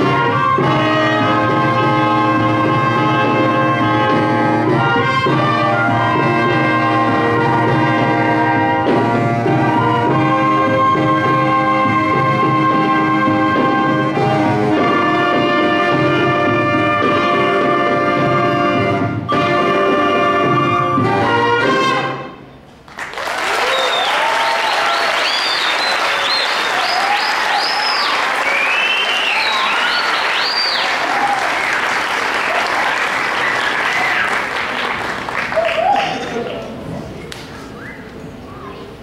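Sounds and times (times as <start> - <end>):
wind band playing held chords: 0.0 - 22.6
audience applause: 22.9 - 37.1
high-pitched cheers: 23.1 - 34.8, 35.4 - 36.5.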